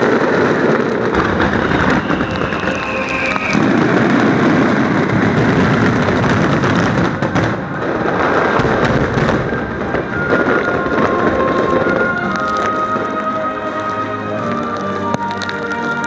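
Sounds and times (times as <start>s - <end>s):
fireworks booming and crackling: 0.0s - 16.0s
music playing: 1.2s - 4.3s, 9.6s - 16.0s.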